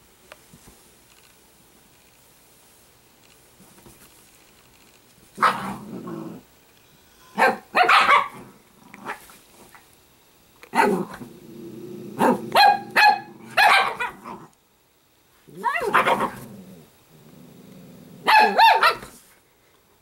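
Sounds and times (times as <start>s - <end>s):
dogs growling: 5.4s - 6.5s, 8.3s - 9.2s, 10.8s - 14.6s, 15.5s - 18.3s
dogs yapping: 7.4s - 8.4s, 12.2s - 14.2s, 18.2s - 19.1s
dogs barking: 7.4s - 8.5s, 10.7s - 11.1s, 12.2s - 14.3s, 18.2s - 19.1s.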